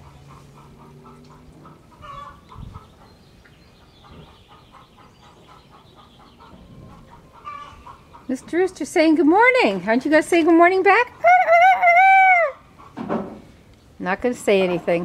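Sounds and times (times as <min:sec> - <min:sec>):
chickens clucking softly: 0:00.0 - 0:08.8
loud chicken call: 0:11.2 - 0:12.7.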